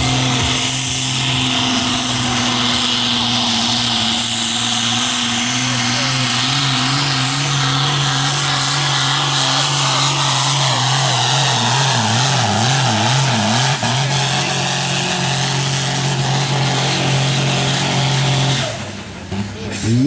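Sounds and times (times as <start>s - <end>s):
tractor diesel engine under load: 0.0s - 20.0s.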